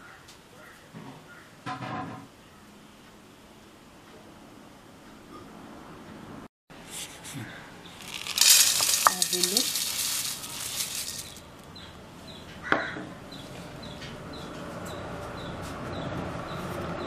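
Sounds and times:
flakes pouring into metal bowl: 8.0 - 11.4.

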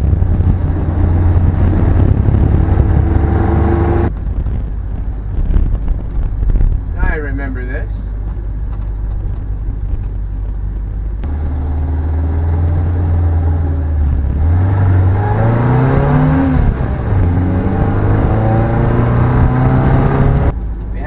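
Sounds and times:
car engine accelerating: 0.0 - 7.2, 8.0 - 21.0.

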